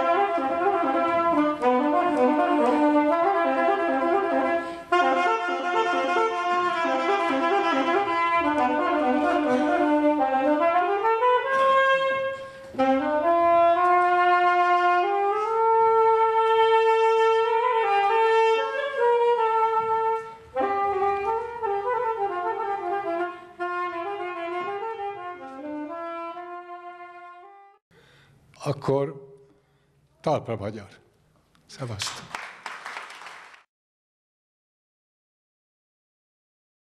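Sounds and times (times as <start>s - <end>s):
slow wind instrument melody: 0.0s - 27.8s.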